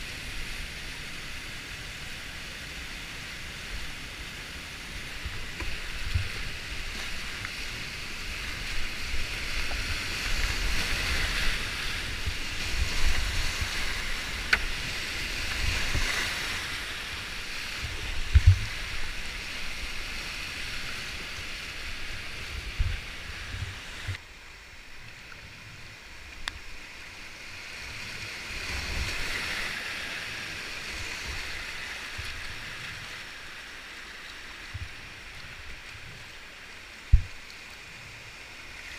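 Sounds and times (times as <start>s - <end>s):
whitewater rushing: 0.0s - 25.0s, 25.8s - 38.9s
paddle splashes and thumps: 5.2s - 7.6s, 8.2s - 16.8s, 17.5s - 19.7s, 37.1s - 37.4s.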